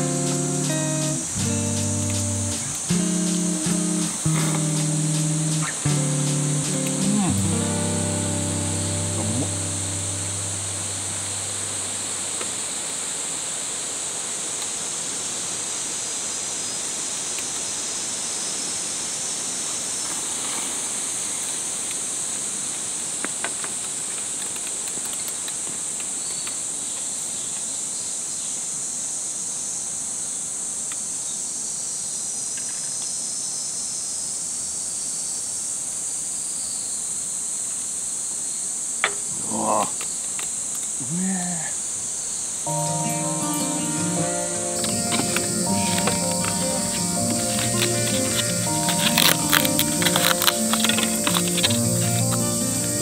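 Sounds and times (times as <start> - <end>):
short low sounds: 0.0 - 12.4
insects shrilling: 0.0 - 12.7, 39.2 - 53.0.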